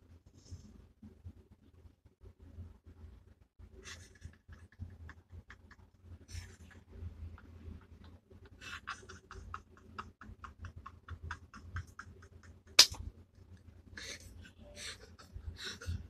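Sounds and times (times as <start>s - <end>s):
woman laughing hard: 8.6s - 12.6s, 14.0s - 16.0s.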